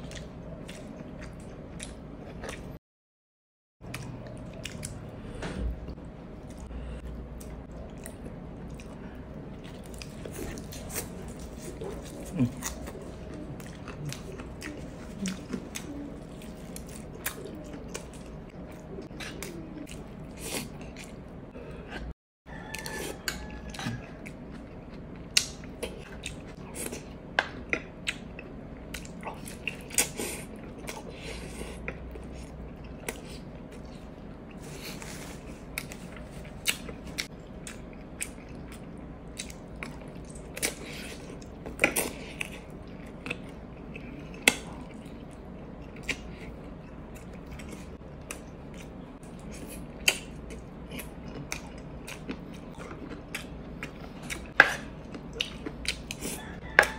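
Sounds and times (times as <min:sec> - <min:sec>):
steady low hum: 0:03.8 - 0:22.2, 0:23.0 - 0:56.9
person chewing and biting: 0:07.3 - 0:21.2, 0:31.8 - 0:56.9.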